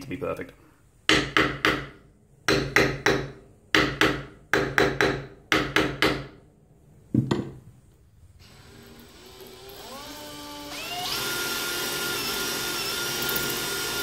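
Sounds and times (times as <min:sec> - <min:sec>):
hammer striking nail: 0:01.1 - 0:06.4.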